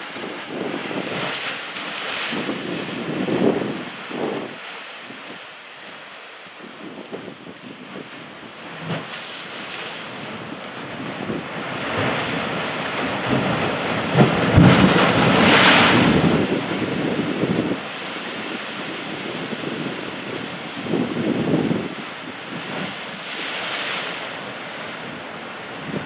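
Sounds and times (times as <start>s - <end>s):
ocean wave surging: 8.0s - 26.0s.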